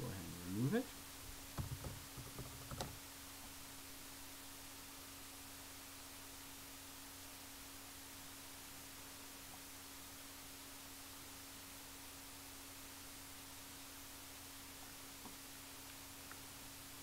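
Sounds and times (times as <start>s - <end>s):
faint electrical hum with hiss: 0.0s - 17.0s
keyboard typing and clicks: 1.6s - 3.0s.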